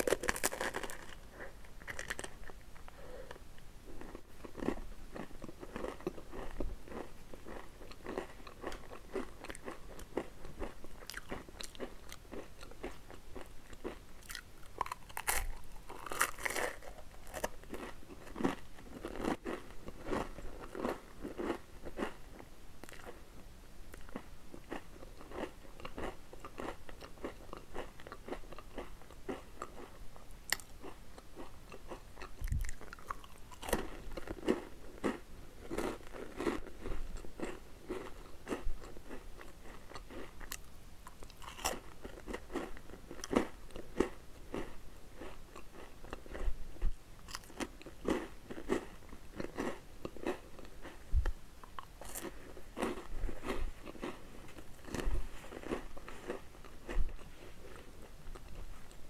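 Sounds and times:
crunchy snack bites: 0.0 - 3.4, 4.0 - 22.2, 22.8 - 23.2, 23.9 - 46.5, 47.2 - 59.0
crunchy chewing: 0.0 - 23.2, 23.9 - 59.0.

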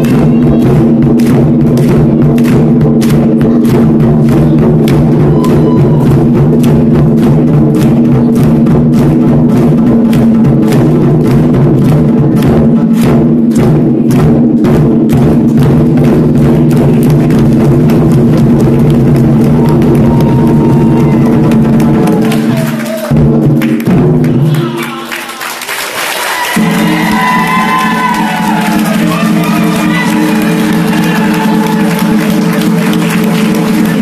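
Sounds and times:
deep ring of barrel drums: 0.0 - 22.2
taiko drums beaten rapidly: 0.0 - 34.0.

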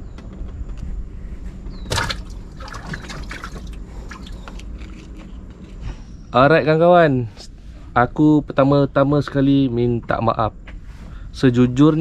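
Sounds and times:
low rumble: 0.0 - 12.0
water splashing and trickling: 1.9 - 5.2.

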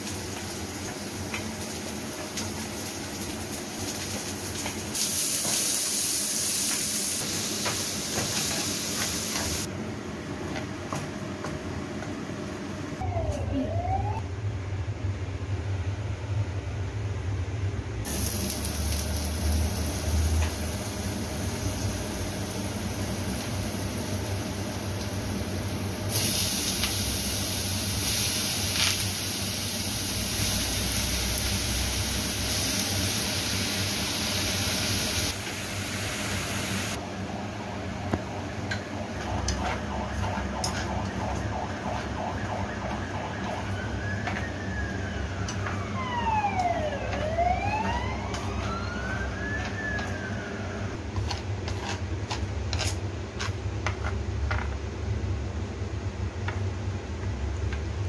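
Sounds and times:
food sizzling in oil: 0.0 - 9.7, 18.1 - 37.0
wailing siren tone: 13.0 - 14.2, 39.0 - 51.0.

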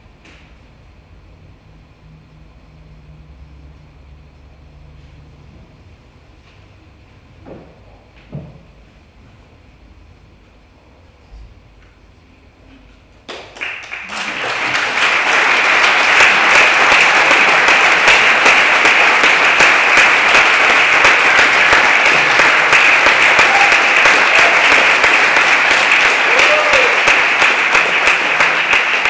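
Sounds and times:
audience applause: 13.3 - 29.0.

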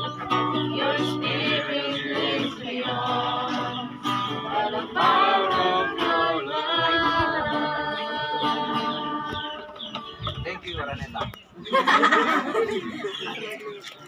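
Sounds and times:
people singing together: 0.0 - 10.2
strummed acoustic guitar: 0.0 - 10.2.

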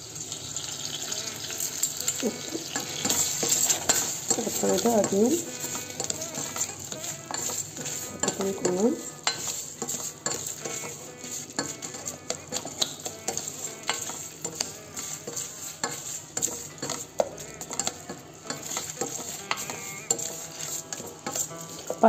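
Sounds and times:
vegetables sizzling in oil: 0.0 - 22.0
spatula scraping a metal pot: 1.1 - 22.0.

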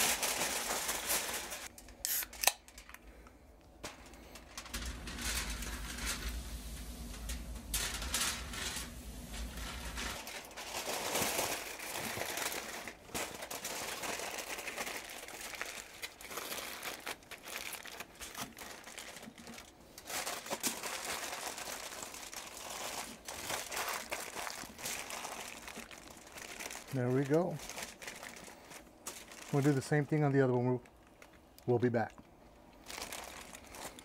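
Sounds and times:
aluminium foil crinkling: 0.0 - 3.2, 3.8 - 34.0.

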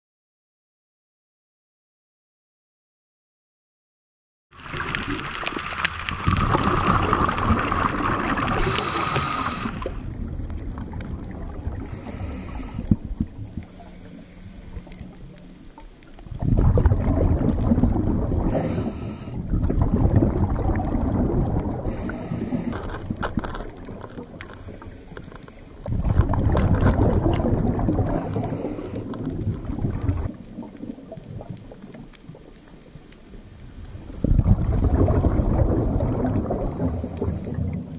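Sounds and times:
bubbling underwater exhalations: 4.6 - 15.3, 16.2 - 24.8, 25.8 - 32.5, 33.8 - 37.9
regulator hissing inhalations: 8.6 - 9.9, 11.8 - 12.9, 18.5 - 19.4, 21.9 - 22.8, 28.1 - 29.1.

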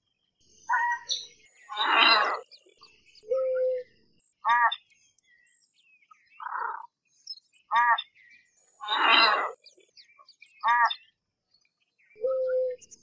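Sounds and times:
ibis calling: 0.7 - 2.6, 4.4 - 4.8, 7.7 - 8.1, 8.8 - 9.6, 10.6 - 11.1.

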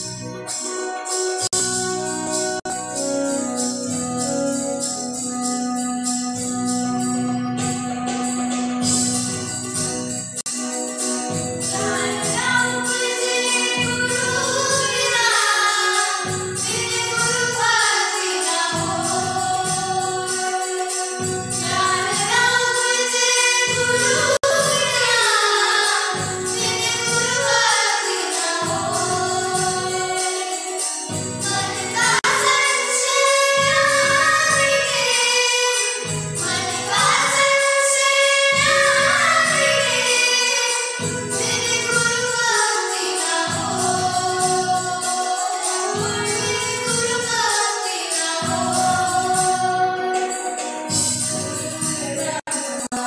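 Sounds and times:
electronic keyboard: 0.0 - 53.0
children singing: 11.7 - 53.0.

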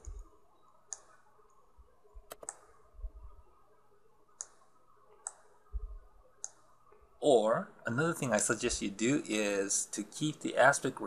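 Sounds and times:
computer mouse clicks: 0.0 - 1.6, 2.2 - 2.8, 4.3 - 5.6, 6.4 - 6.7.

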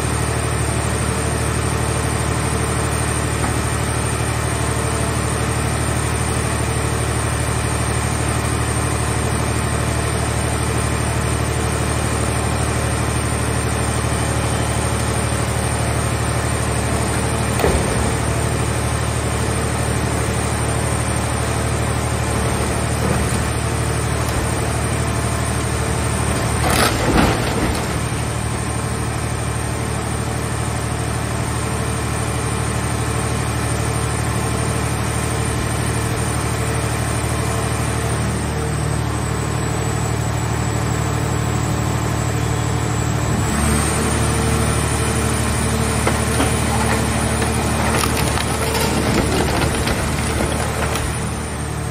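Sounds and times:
hydraulic power unit running: 0.1 - 37.9, 40.2 - 51.9
sheet metal crunching: 22.2 - 28.8, 45.8 - 51.6.

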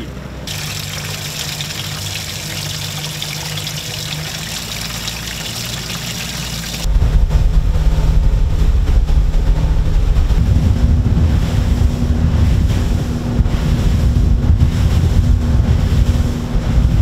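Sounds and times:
boat running: 0.0 - 17.0
low engine hum: 0.0 - 17.0
water splashing into bait well: 0.5 - 6.9
wind buffeting microphone: 6.7 - 17.0.

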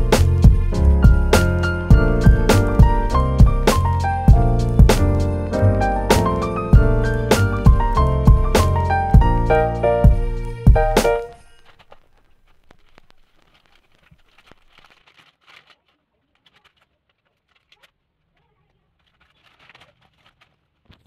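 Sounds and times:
plastic packaging rustling: 11.2 - 21.0.

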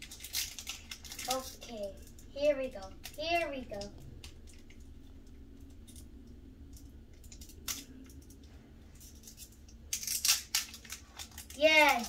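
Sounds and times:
foil wrapper crackling: 0.0 - 5.0, 9.0 - 12.0.

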